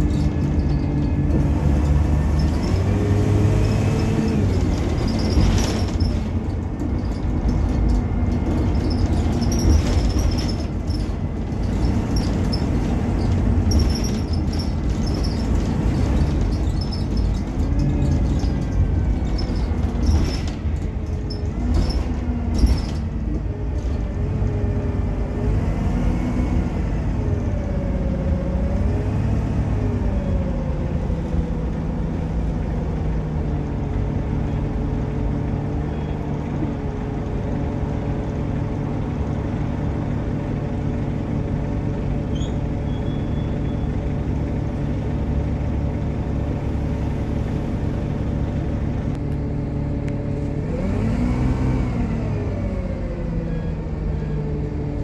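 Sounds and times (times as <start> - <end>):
knocks and rattles: 0.0 - 24.2
bus diesel engine: 0.0 - 55.0.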